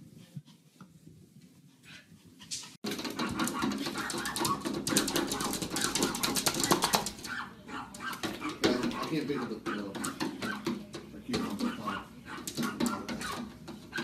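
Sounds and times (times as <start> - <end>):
small dogs barking and yapping: 2.9 - 14.0.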